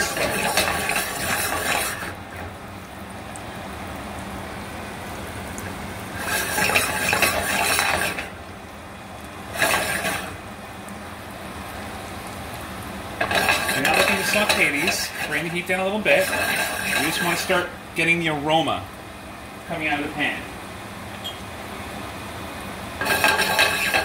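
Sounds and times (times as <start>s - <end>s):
metal pan scraping on grate: 0.0s - 2.2s, 6.2s - 8.3s, 9.6s - 10.3s, 13.2s - 17.6s, 23.0s - 24.0s
food sizzling in a pan: 0.0s - 18.1s, 20.4s - 24.0s.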